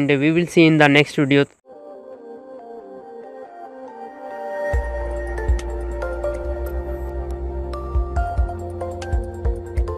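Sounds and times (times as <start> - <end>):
steady bass line: 4.8 - 9.9.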